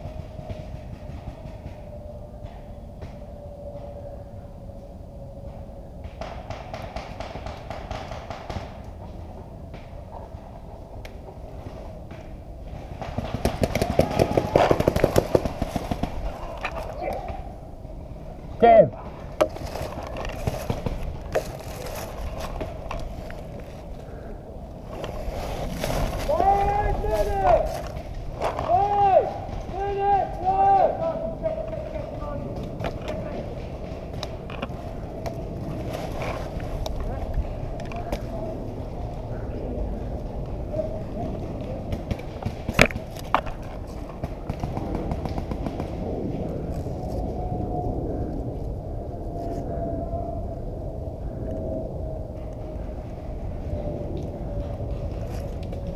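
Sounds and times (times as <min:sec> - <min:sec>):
rustling in dry leaves: 0:19.2 - 0:28.9, 0:34.5 - 0:37.7.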